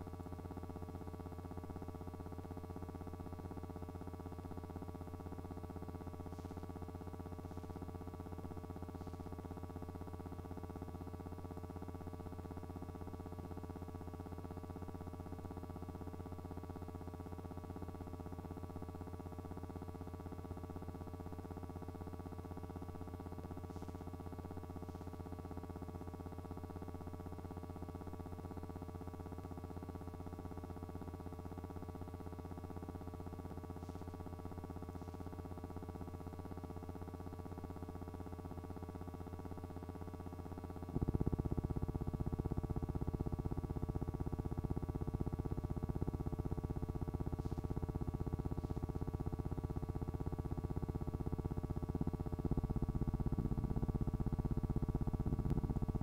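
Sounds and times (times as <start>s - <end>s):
electrical hum: 0.0s - 29.6s, 30.2s - 56.0s.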